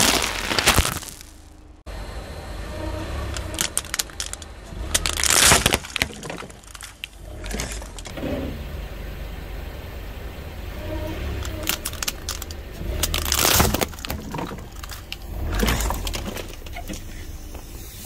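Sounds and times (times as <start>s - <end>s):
tyre crushing brittle objects: 0.0s - 1.6s, 3.4s - 8.1s, 11.4s - 17.0s
car rumble: 0.0s - 18.0s.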